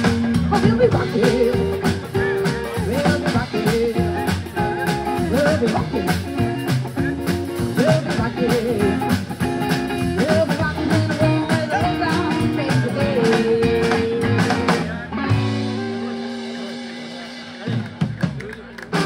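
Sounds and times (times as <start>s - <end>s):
drum kit: 0.0s - 19.0s
guitar: 0.0s - 19.0s
upright bass: 0.0s - 19.0s
woman singing: 0.4s - 2.0s, 2.7s - 4.3s, 5.2s - 6.3s, 7.8s - 9.2s, 9.9s - 14.8s.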